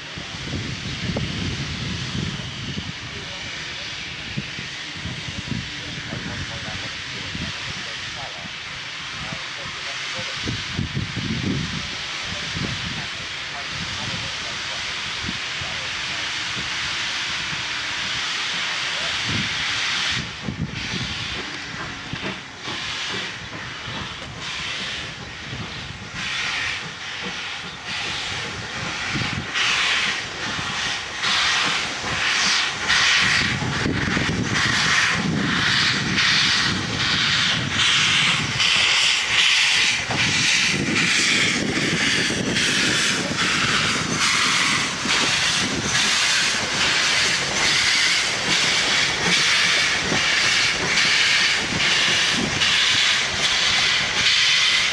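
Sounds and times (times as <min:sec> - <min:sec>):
steam locomotive chuffing: 0:00.0 - 0:54.9
steam hissing from drain cocks: 0:13.2 - 0:54.9.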